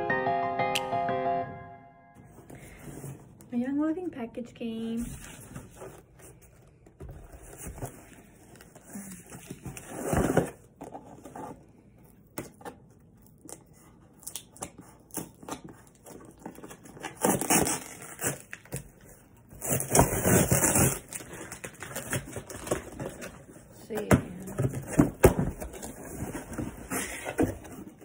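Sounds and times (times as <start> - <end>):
cardboard box rustling and tearing: 7.2 - 11.6, 15.3 - 23.7.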